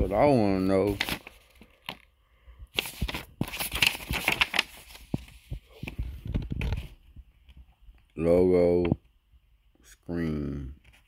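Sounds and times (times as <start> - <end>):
cardboard rustling and crinkling: 0.0 - 2.1, 2.7 - 7.1.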